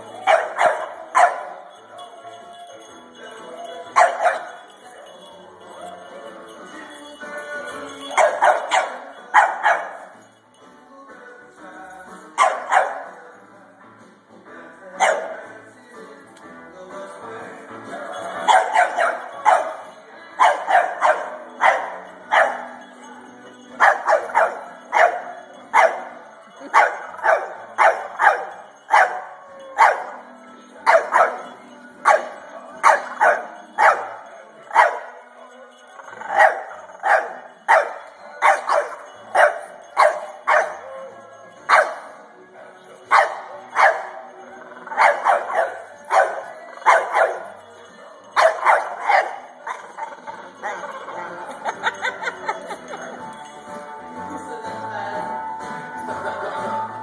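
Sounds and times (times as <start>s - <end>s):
puppy barking: 0.0s - 1.8s, 3.9s - 4.7s, 8.1s - 10.2s, 12.4s - 13.2s, 15.0s - 15.4s, 18.3s - 22.8s, 23.8s - 35.2s, 36.0s - 41.0s, 41.7s - 42.2s, 43.0s - 47.5s, 48.4s - 52.8s
toy dog singing: 0.0s - 13.9s, 14.5s - 57.0s.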